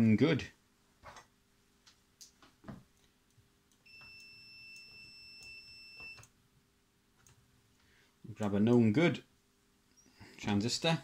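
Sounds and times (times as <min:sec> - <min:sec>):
multimeter high-pitched beep: 0:03.9 - 0:06.3.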